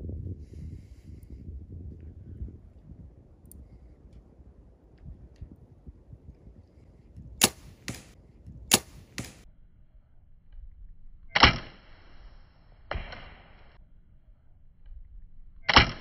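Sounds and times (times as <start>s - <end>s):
bow shot snaps: 7.4s - 9.4s.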